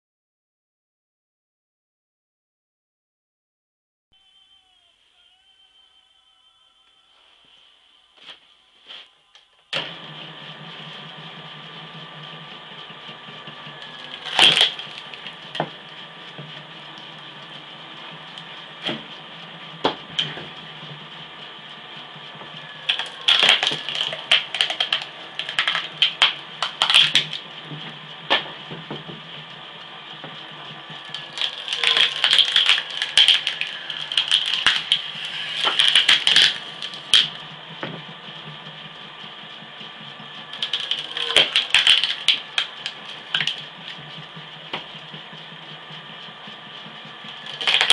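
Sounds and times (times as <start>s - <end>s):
electric motor humming: 9.8s - 47.9s
wood cracking and splintering: 13.8s - 15.8s, 22.9s - 27.4s, 31.0s - 37.4s, 40.5s - 44.0s, 47.4s - 47.9s.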